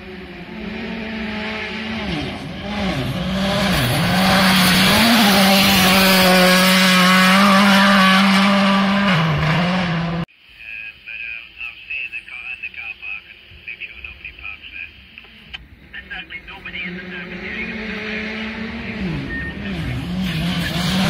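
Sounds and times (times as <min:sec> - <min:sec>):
rally car engine at full throttle: 0:00.0 - 0:10.3, 0:15.2 - 0:21.0.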